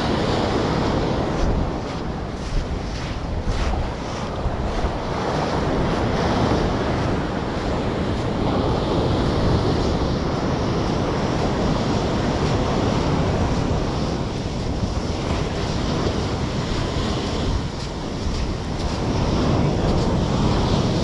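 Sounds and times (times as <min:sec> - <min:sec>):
ocean surf on beach: 0:00.0 - 0:21.0
wind buffeting microphone: 0:00.0 - 0:21.0.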